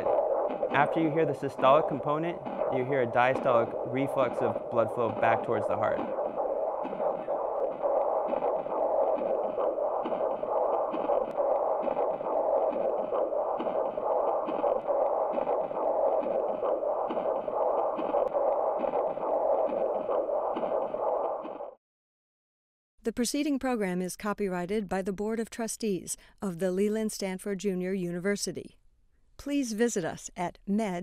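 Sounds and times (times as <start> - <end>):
rhythmic whooshing blood flow: 0.0 - 21.8.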